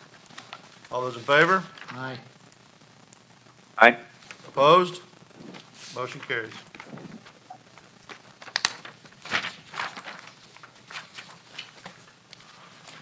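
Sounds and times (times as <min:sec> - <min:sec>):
papers rustling: 0:00.0 - 0:02.2, 0:05.3 - 0:13.0.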